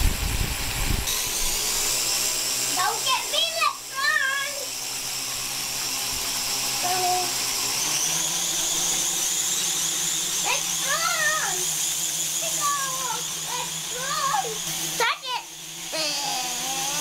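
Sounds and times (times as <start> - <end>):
toy electric motor whining: 0.0 - 17.0
child crying out: 15.9 - 17.0.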